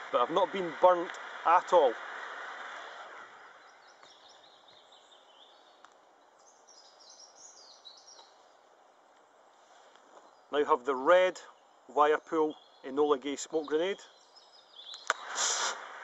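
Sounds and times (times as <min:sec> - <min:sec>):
faint bird chirps: 0:03.0 - 0:08.7, 0:11.4 - 0:15.6
smoke grenade hissing: 0:15.0 - 0:16.0.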